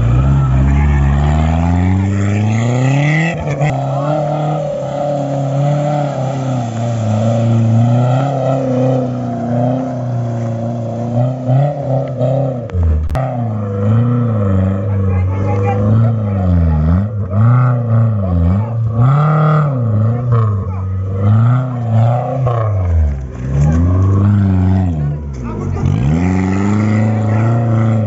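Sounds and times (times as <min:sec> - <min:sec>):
engine revving hard: 0:00.0 - 0:28.0.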